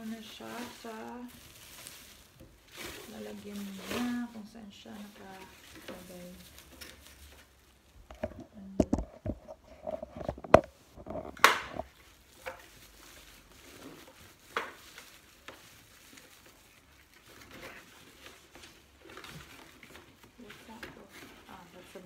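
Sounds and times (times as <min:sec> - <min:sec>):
cardboard box being handled: 0:00.0 - 0:07.6
plastic bag rustling: 0:00.0 - 0:22.0.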